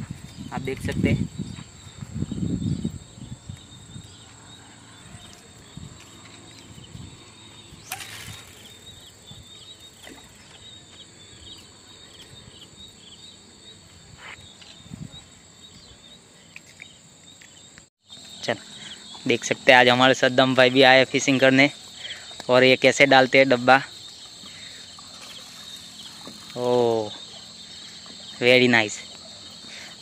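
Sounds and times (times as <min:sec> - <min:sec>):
crickets chirping: 0:00.0 - 0:30.0
fishing line cast rushing: 0:07.8 - 0:08.9.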